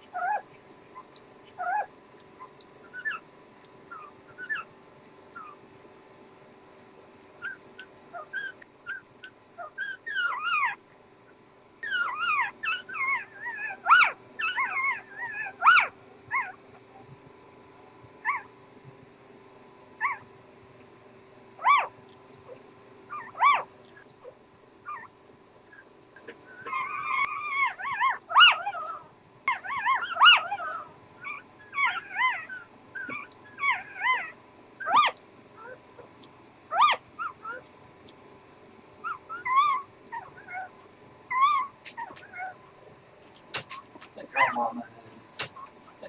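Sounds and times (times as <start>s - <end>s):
newborn puppies squeaking: 0.1s - 3.3s, 3.9s - 4.7s, 5.3s - 5.6s, 7.4s - 10.8s, 11.8s - 16.6s, 18.2s - 18.5s, 20.0s - 20.3s, 21.6s - 22.0s, 23.1s - 24.1s, 24.9s - 25.1s, 26.5s - 35.8s, 36.7s - 37.7s, 39.0s - 40.7s, 41.3s - 42.6s.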